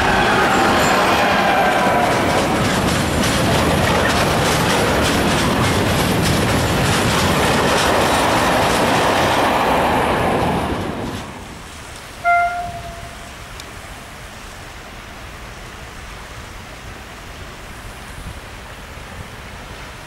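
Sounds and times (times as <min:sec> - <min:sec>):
train wheels clicking over rail joints: 0:00.0 - 0:12.2.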